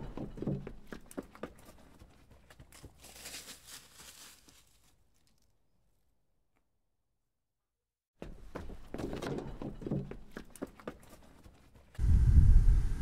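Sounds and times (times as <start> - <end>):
footsteps on dirt trail: 0.0 - 4.9
grass rustling: 2.5 - 5.4.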